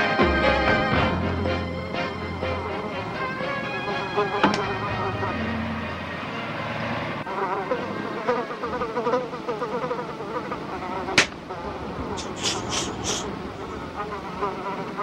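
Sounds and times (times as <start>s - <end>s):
insect buzzing: 7.2s - 15.0s
sharp snap: 11.2s - 11.4s
short hissing bursts: 12.2s - 13.5s.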